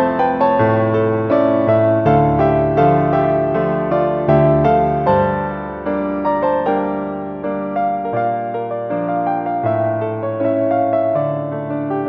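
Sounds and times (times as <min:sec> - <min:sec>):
slow solo piano melody: 0:00.0 - 0:12.0.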